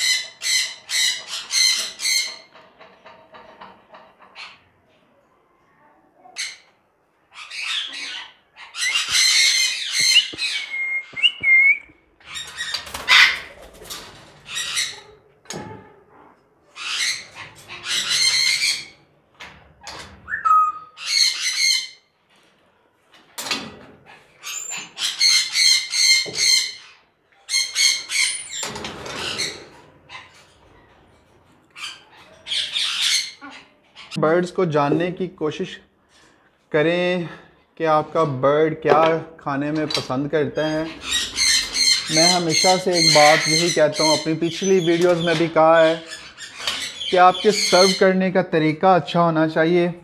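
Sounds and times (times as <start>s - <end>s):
parrots squawking: 0.0s - 2.6s, 6.4s - 11.5s, 12.2s - 13.6s, 14.4s - 15.2s, 16.7s - 19.1s, 20.3s - 22.1s, 24.1s - 30.9s, 31.7s - 34.2s, 40.6s - 48.2s
parrot whistles: 10.0s - 11.9s, 20.3s - 21.0s.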